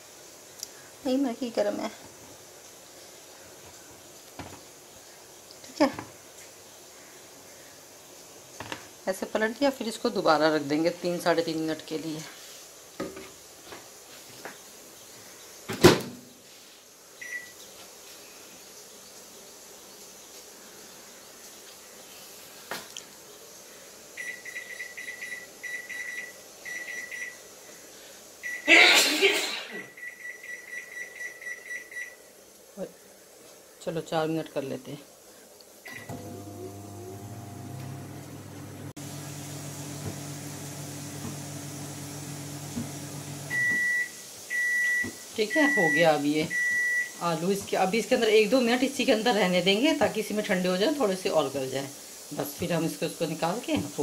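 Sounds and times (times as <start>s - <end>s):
microwave oven humming: 35.9s - 44.0s.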